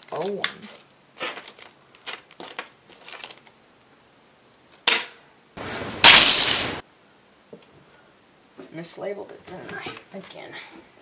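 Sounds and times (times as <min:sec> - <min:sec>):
loud plastic crinkling: 0:00.0 - 0:03.6
plastic bags clicking and rustling: 0:00.0 - 0:03.6.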